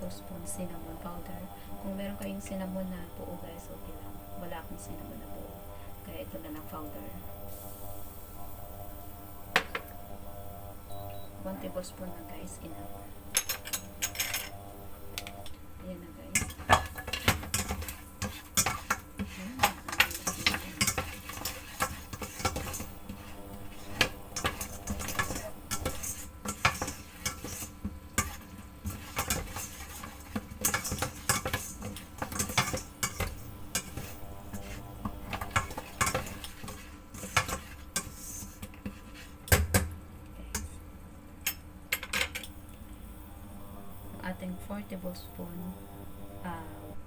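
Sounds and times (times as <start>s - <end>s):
spatula scraping metal pot: 16.3s - 39.5s.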